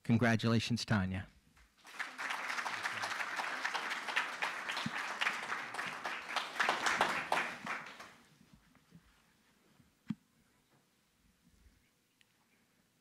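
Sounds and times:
audience applauding: 1.8 - 8.2.

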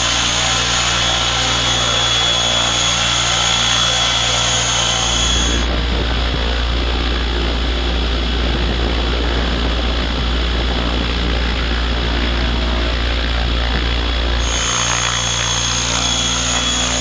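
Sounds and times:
model helicopter whine: 0.0 - 17.0
loud low rumble with rushing: 5.6 - 14.4.

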